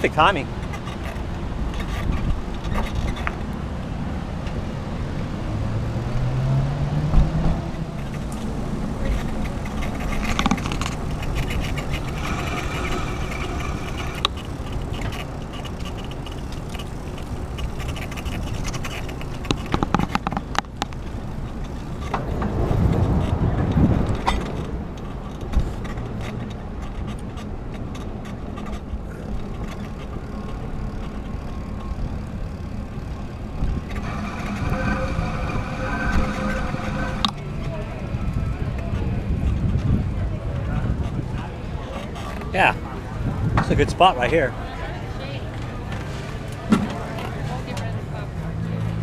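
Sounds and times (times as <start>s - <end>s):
car traffic passing: 0.0s - 49.0s
wind and tyre rumble: 0.0s - 49.0s
clicks and rattles: 8.0s - 40.0s
vehicle engine rising in pitch: 34.0s - 39.2s.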